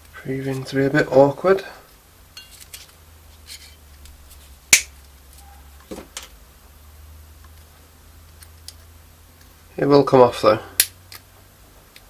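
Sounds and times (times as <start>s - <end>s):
side cutters metallic snap: 4.7s - 4.9s, 10.8s - 11.2s.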